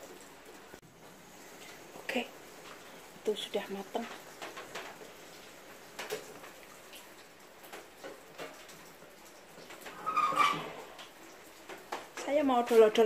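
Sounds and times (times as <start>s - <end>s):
faint ticks and clicks: 1.0s - 10.0s.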